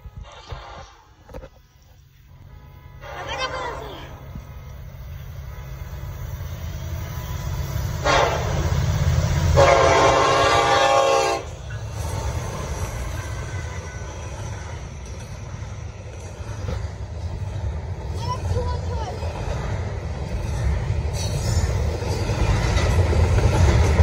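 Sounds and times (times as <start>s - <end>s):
diesel locomotive engine rumbling: 0.0s - 24.0s
train horn: 8.0s - 8.7s, 9.5s - 11.6s.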